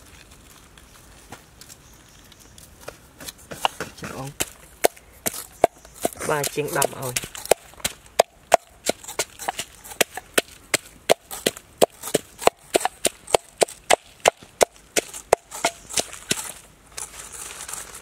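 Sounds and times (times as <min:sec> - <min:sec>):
wooden pestle pounding in mortar: 0:03.5 - 0:16.5.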